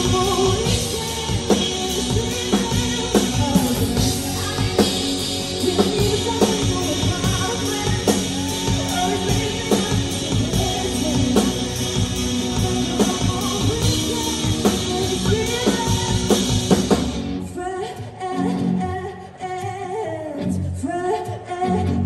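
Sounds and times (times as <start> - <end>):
drum kit: 0.0 - 17.5
bass guitar: 0.0 - 17.6
electric guitars: 0.0 - 20.8
woman singing: 0.0 - 22.0.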